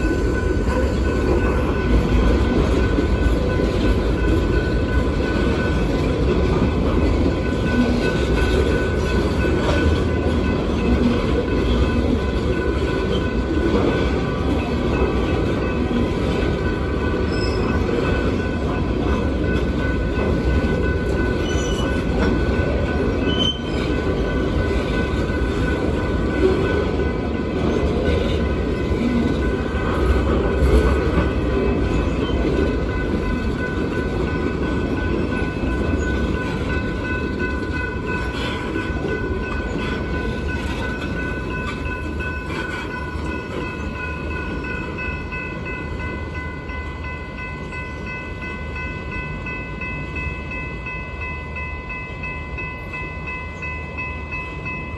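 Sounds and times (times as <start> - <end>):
train wheels rumbling on rails: 0.0 - 54.9
high ringing tone: 16.8 - 18.8, 19.8 - 27.9.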